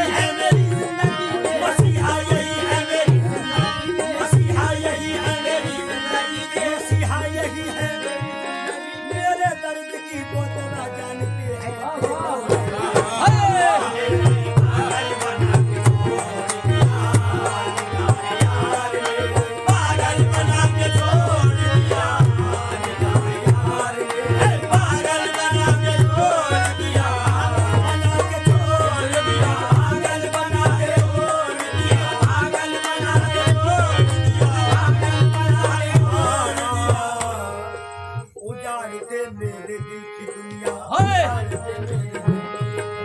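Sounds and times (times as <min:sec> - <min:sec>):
sliding vocal melody: 0:00.0 - 0:42.3
tabla playing steady rhythm: 0:00.0 - 0:43.0.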